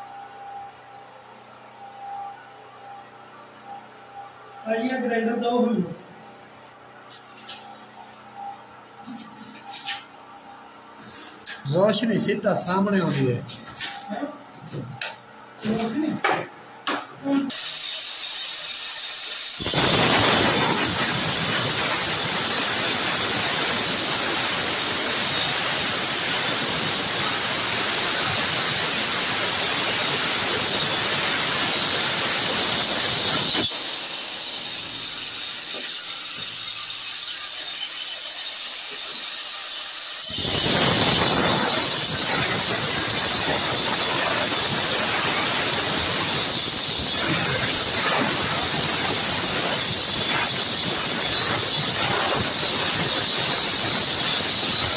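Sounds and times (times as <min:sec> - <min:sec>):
angle grinder cutting tile: 0:17.5 - 0:54.9.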